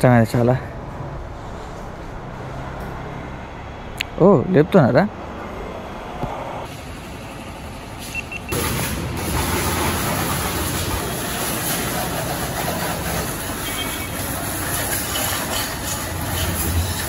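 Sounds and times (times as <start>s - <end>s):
pressure washer water jet hissing: 8.1s - 17.0s
bike lift mechanical running: 8.3s - 17.0s.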